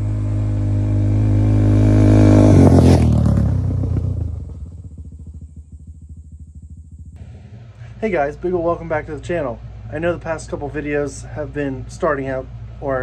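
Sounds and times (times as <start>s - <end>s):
engine revving then idling: 0.0s - 13.0s.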